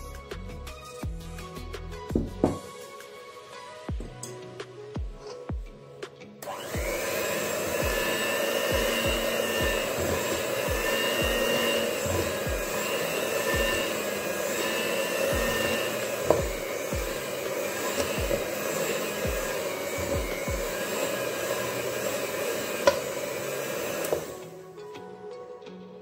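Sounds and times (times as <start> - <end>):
background music with steady beat: 0.0 - 26.0
knock: 2.1 - 2.7
electric hand mixer running: 6.4 - 24.6.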